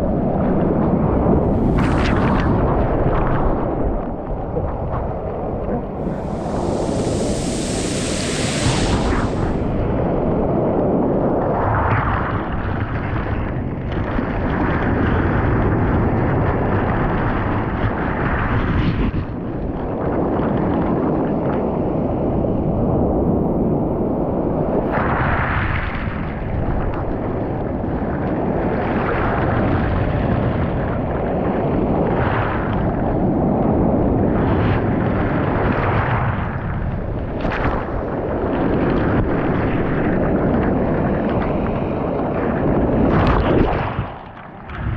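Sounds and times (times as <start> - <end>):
surf washing over pebbles: 1.0 - 11.0, 36.5 - 44.9.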